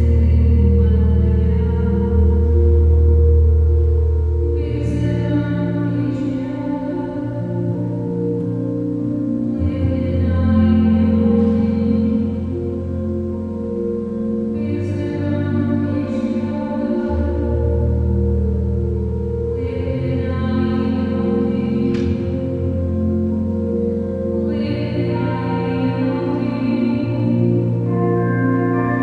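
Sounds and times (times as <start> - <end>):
choir singing sustained chords: 0.0 - 29.0.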